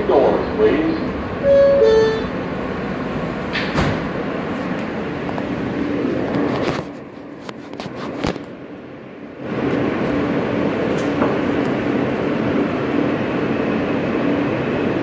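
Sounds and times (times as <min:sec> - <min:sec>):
subway car rumble: 0:00.0 - 0:15.0
two-note door chime: 0:01.4 - 0:02.3.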